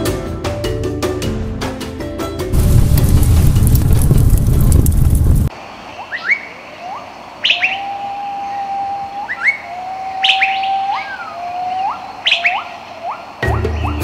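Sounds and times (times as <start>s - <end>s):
bird whistles sweeping upward: 6.0s - 14.0s
high rising bird chirps: 6.0s - 14.0s.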